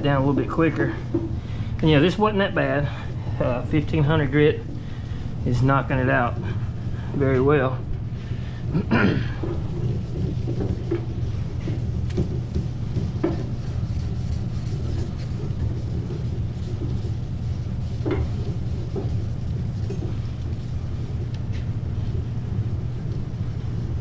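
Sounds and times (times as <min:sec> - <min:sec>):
steady low hum: 0:00.0 - 0:24.0
sandpaper rubbing: 0:09.4 - 0:24.0.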